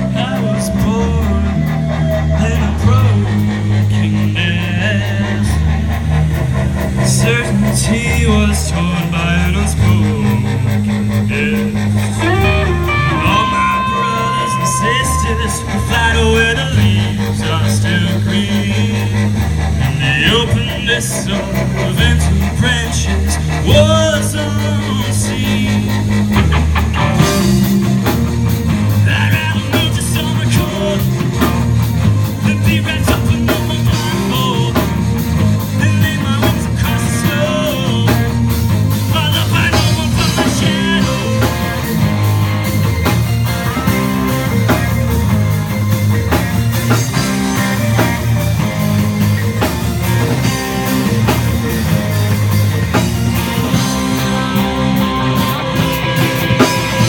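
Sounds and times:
young man singing: 0:00.0 - 0:05.9, 0:07.0 - 0:26.4, 0:28.9 - 0:42.1, 0:53.0 - 0:57.0
rock band playing live: 0:00.0 - 0:57.0.

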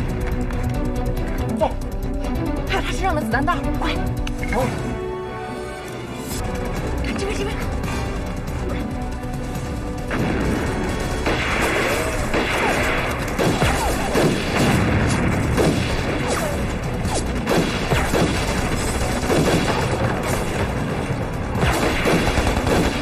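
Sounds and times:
dramatic background music: 0:00.0 - 0:23.0
gunfire: 0:10.0 - 0:23.0
explosions: 0:10.1 - 0:23.0.

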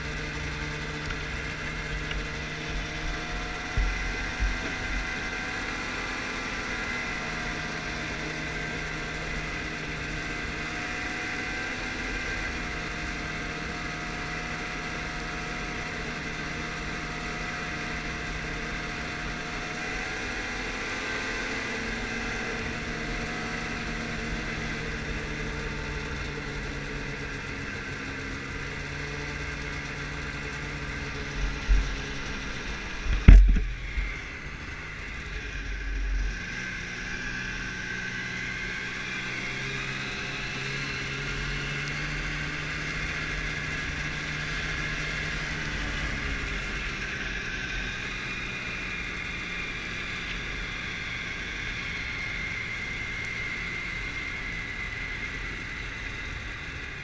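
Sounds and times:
snowmobile engine running: 0:00.0 - 0:57.0
loud thumps: 0:33.1 - 0:33.8.

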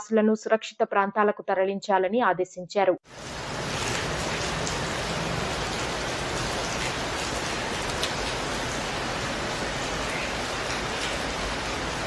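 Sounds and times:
heavy rain: 0:03.1 - 0:12.0.

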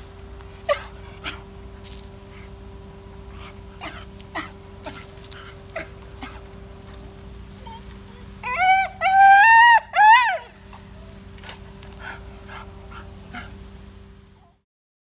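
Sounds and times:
high whine: 0:00.0 - 0:14.6
steady hum: 0:00.0 - 0:14.6
dog whimpering and yipping: 0:00.6 - 0:01.4, 0:02.3 - 0:02.6, 0:07.6 - 0:10.9.

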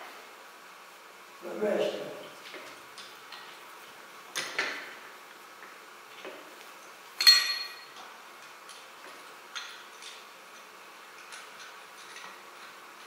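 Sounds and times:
metal tools clinking on engine parts: 0:07.2 - 0:08.0.

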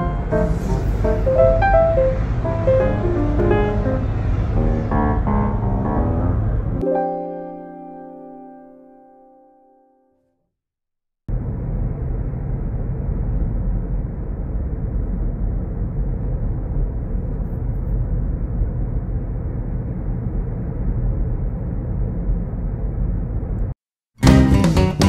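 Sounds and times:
car cabin road rumble: 0:00.0 - 0:06.8.

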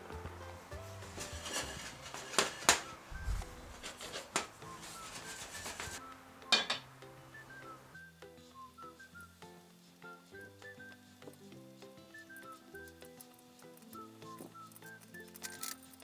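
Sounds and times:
soft background music: 0:00.0 - 0:16.0
utensil scraping a pot: 0:01.0 - 0:06.0
glass lid clattering onto pot: 0:06.5 - 0:06.8.

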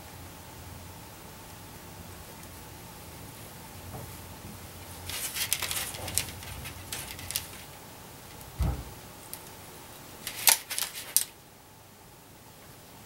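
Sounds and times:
soldering clicks and crackling: 0:05.0 - 0:08.6, 0:09.2 - 0:09.6, 0:10.2 - 0:11.4
dull thump: 0:08.6 - 0:09.0.

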